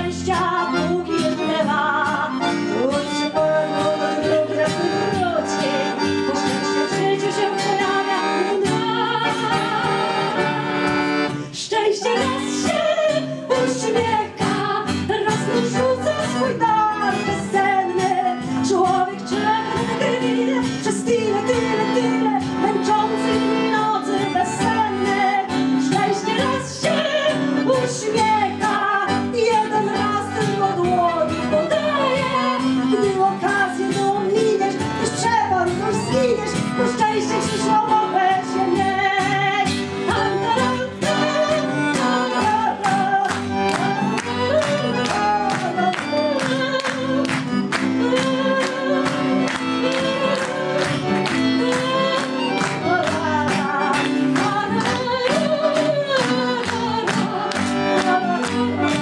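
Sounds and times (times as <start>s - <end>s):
accordion: 0.0s - 59.0s
acoustic guitar: 0.0s - 59.0s
woman singing: 0.0s - 59.0s.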